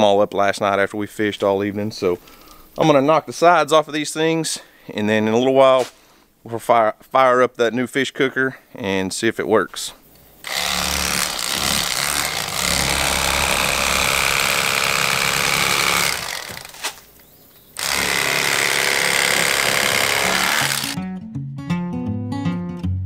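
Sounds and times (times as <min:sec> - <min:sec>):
electric fillet knife buzzing: 0:10.4 - 0:17.0, 0:17.8 - 0:21.0.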